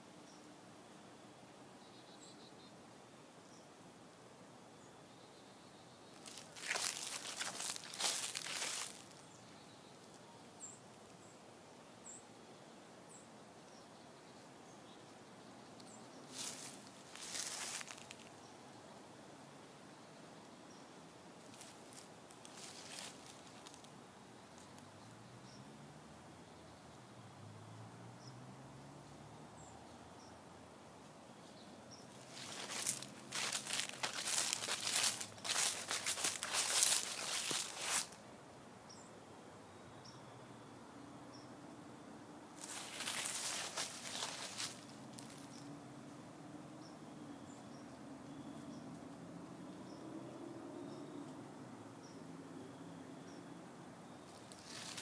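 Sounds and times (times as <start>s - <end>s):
footsteps crunching through dry leaves: 6.2s - 9.3s, 16.3s - 18.3s, 21.5s - 23.9s, 32.1s - 38.2s, 42.6s - 45.6s, 54.3s - 55.0s.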